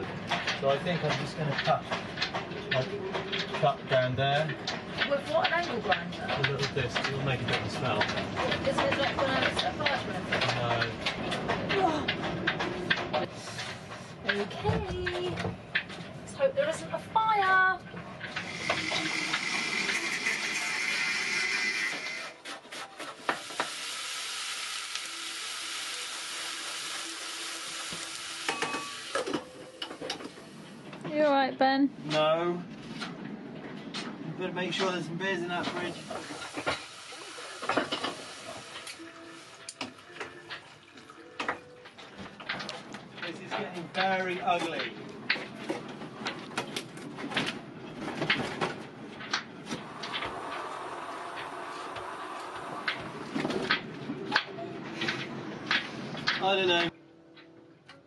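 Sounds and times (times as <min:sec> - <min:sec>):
knocks clicks and scrapes of generator: 0:00.0 - 0:16.2, 0:42.3 - 0:57.0
food sizzling in a pan: 0:18.4 - 0:22.3, 0:23.0 - 0:30.6, 0:35.7 - 0:39.7.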